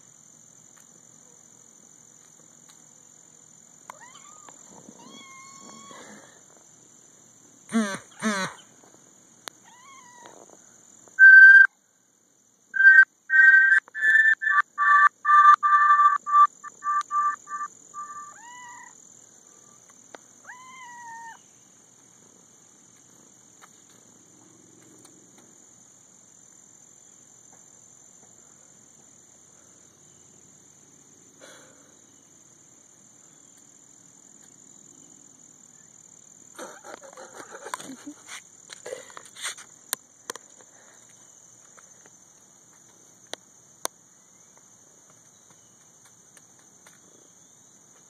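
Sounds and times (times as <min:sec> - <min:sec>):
faint high-pitched hiss: 0:00.0 - 0:14.0, 0:16.6 - 0:48.0
kitten meowing: 0:03.9 - 0:06.0, 0:09.6 - 0:10.4, 0:18.0 - 0:18.9, 0:20.5 - 0:21.4
high whistled chirps: 0:11.2 - 0:11.8, 0:12.8 - 0:18.4.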